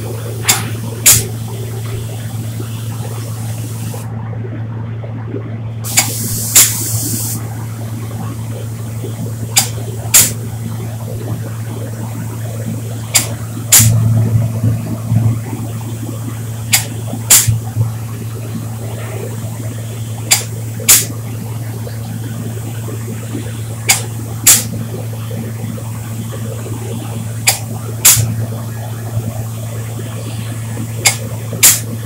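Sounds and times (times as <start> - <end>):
extraction fan humming: 0.0 - 32.0
spray gun air hisses: 0.4 - 4.0, 5.9 - 7.4, 9.6 - 10.4, 16.7 - 17.6, 20.3 - 21.2, 23.9 - 24.8, 27.5 - 28.3, 30.2 - 32.0.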